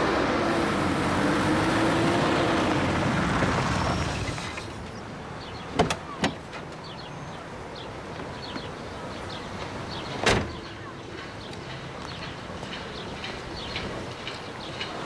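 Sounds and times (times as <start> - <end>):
car engine noise: 0.0 - 6.7.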